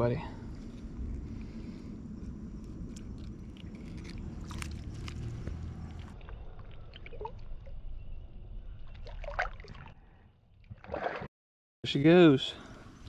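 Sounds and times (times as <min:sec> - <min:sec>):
pond water sloshing and splashing: 0:02.6 - 0:07.8, 0:08.8 - 0:11.3
small splashes and drips: 0:02.9 - 0:07.7, 0:08.8 - 0:10.0.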